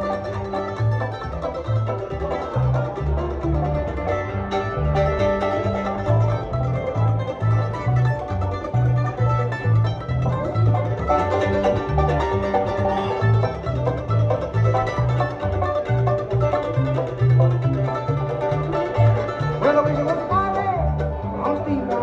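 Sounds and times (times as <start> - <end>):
banjo picking: 0.0 - 22.0
mandolin picking: 0.0 - 22.0
upright bass plucking: 0.0 - 22.0.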